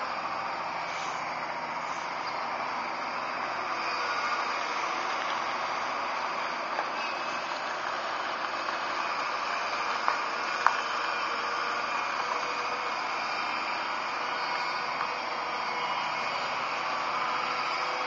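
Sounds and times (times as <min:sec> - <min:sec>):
excavator engine and hydraulics: 0:00.0 - 0:18.0.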